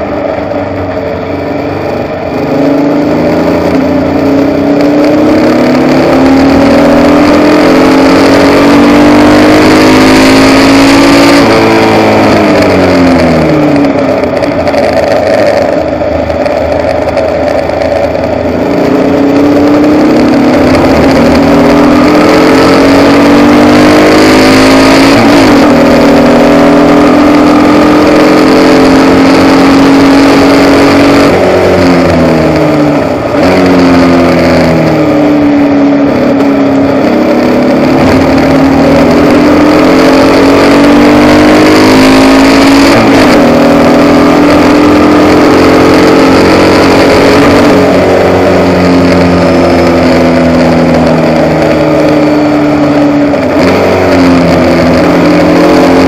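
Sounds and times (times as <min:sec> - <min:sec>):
racing car engine running hard: 0:00.0 - 0:56.0.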